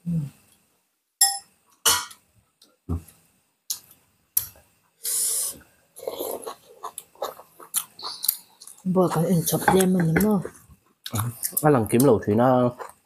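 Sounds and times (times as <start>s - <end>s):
short hissing noise: 5.0s - 5.7s.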